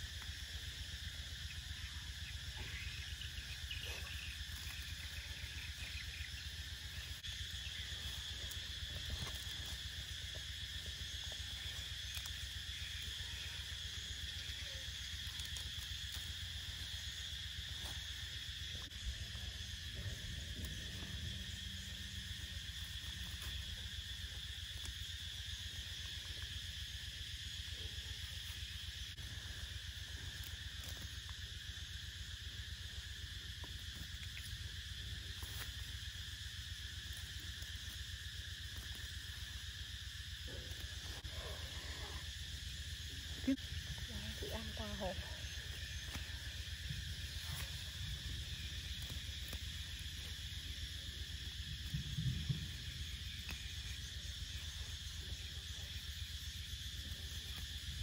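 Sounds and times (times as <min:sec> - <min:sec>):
insect chorus: 0:00.0 - 0:58.0.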